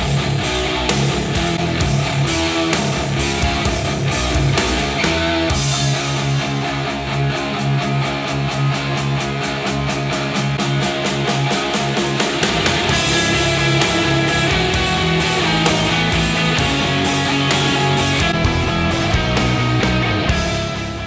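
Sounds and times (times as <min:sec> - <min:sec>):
instrumental guitar music: 0:00.0 - 0:21.0
steady beat: 0:00.0 - 0:21.0.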